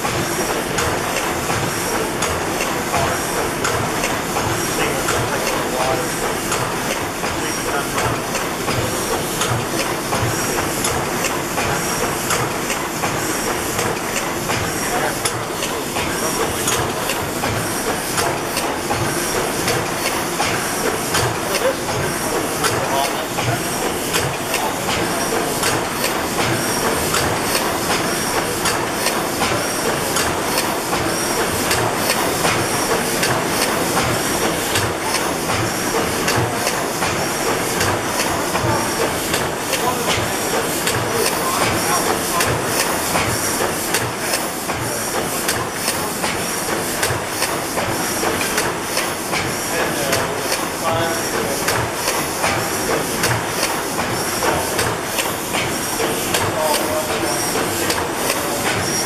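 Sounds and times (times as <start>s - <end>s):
gas engine clattering: 0.0s - 59.0s.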